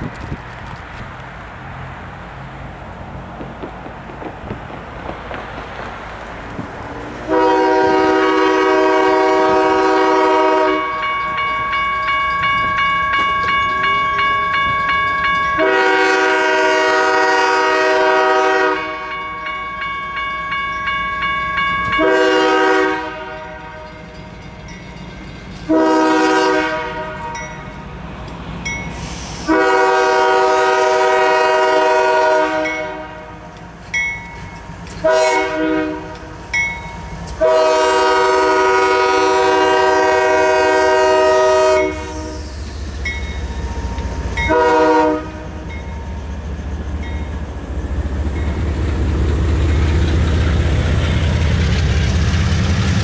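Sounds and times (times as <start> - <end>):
train running noise: 0.0 - 53.0
locomotive air horn blasts: 7.2 - 11.8, 15.5 - 19.6, 21.8 - 24.1, 25.7 - 27.5, 29.0 - 33.4, 35.0 - 36.4, 37.4 - 42.6, 44.4 - 45.8.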